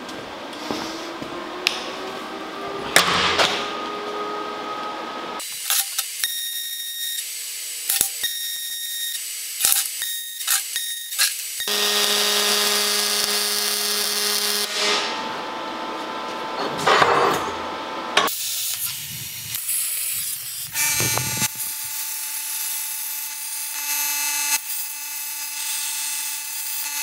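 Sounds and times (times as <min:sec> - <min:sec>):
arc welding crackle: 0:05.4 - 0:15.1, 0:18.3 - 0:27.0.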